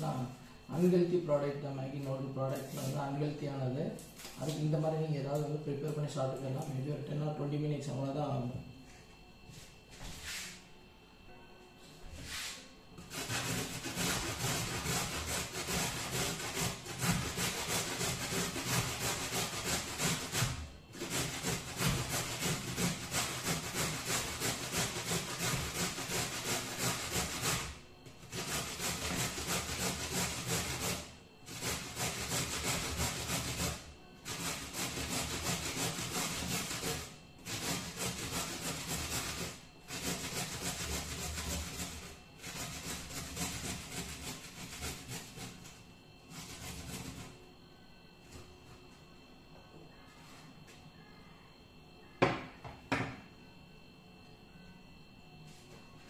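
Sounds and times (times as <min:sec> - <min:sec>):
carrot grated on metal grater: 0:13.0 - 0:45.7, 0:46.3 - 0:47.3.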